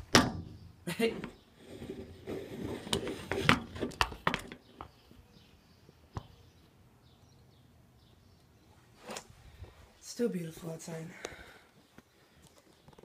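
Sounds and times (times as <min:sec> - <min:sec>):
faint bird chirps: 0:04.6 - 0:08.9.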